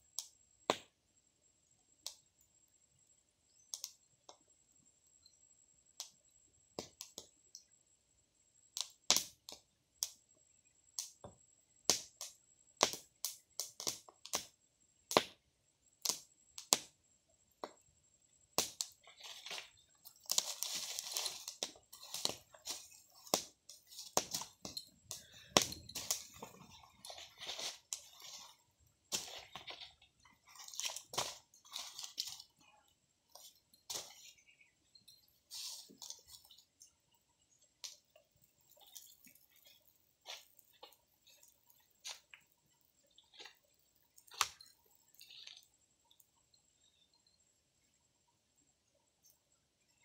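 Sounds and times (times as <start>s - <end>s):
wood fire crackling and popping: 8.7s - 10.2s, 11.0s - 15.4s, 16.0s - 17.0s, 18.6s - 32.6s, 33.3s - 36.9s, 37.5s - 46.2s.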